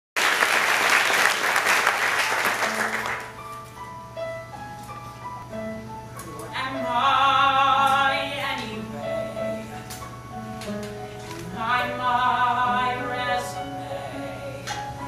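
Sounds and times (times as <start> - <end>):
audience applause: 0.2 - 3.4.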